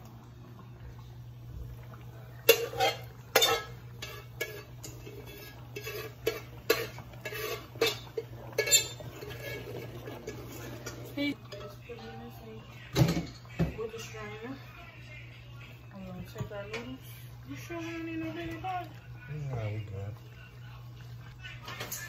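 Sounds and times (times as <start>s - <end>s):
pots and pans knocking and clinking: 2.4s - 12.1s, 12.9s - 13.9s.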